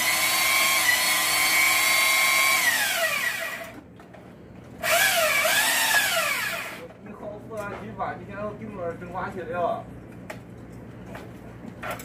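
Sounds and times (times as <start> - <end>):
cordless drill motor whine: 0.0 - 3.8, 4.8 - 6.8.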